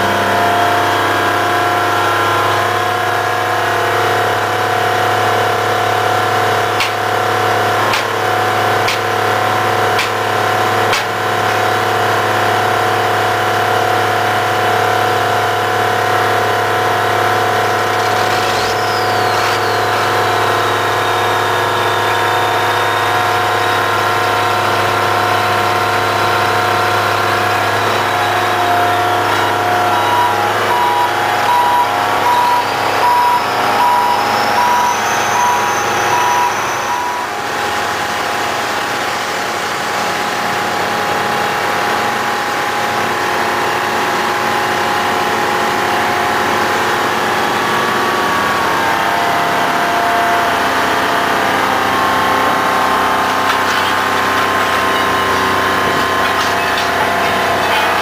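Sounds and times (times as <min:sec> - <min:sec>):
diesel engine running: 0:00.0 - 0:58.0
high hydraulic whine: 0:00.0 - 0:58.0
repeating beep: 0:29.8 - 0:37.4.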